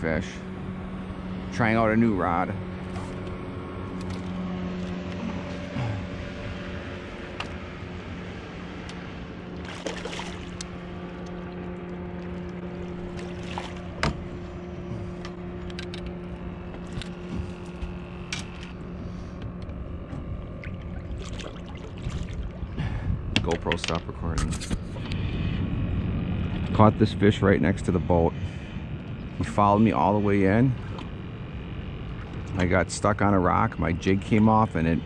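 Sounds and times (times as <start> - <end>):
boat motor humming: 0.0 - 35.0
water splashing and dripping: 9.6 - 11.5
sharp knocks on boat: 13.1 - 14.3.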